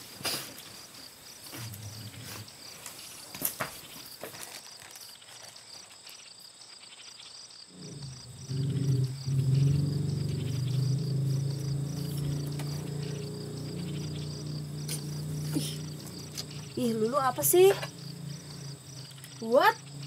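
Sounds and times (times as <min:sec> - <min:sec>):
crickets chirping: 0:00.0 - 0:20.0
low droning tone: 0:07.8 - 0:20.0.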